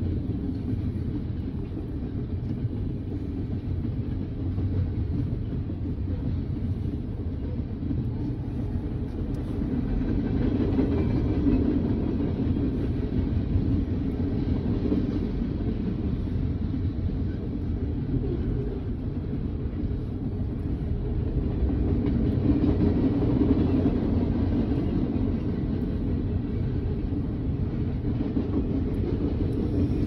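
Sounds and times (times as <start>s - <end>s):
train wheels rumbling on rails: 0.0s - 30.0s.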